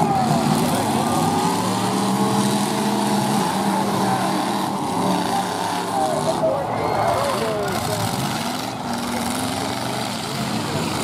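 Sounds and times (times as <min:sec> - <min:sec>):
truck engines revving: 0:00.0 - 0:11.0.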